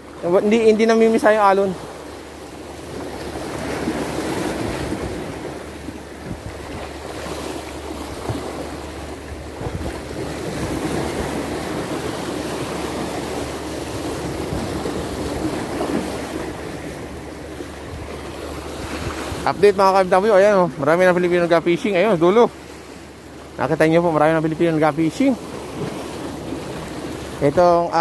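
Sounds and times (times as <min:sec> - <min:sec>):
sea waves washing against shore: 0:00.0 - 0:28.0
wind rumbling on microphone: 0:02.7 - 0:22.0.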